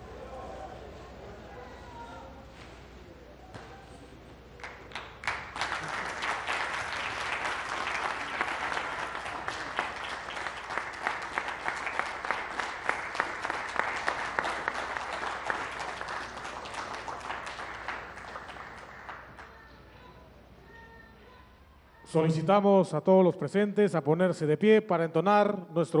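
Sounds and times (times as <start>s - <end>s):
group of people applauding: 4.6s - 19.7s.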